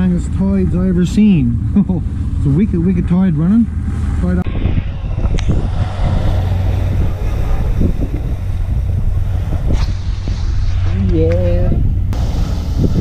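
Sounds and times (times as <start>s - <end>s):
boat engine droning: 0.0s - 13.0s
wind on microphone: 3.7s - 13.0s.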